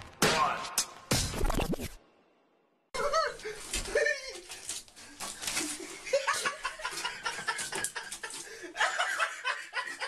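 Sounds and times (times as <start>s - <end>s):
person laughing: 3.0s - 4.5s, 5.6s - 10.0s.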